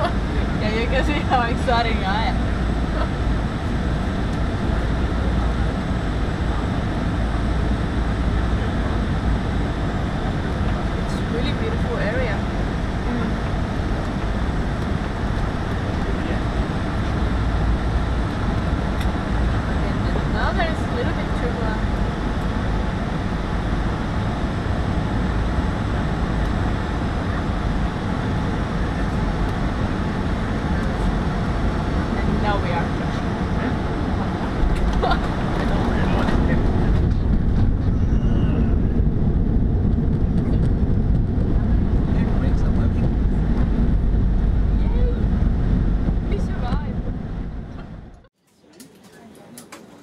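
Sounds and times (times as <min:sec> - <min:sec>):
airliner cabin roar: 0:00.0 - 0:50.0.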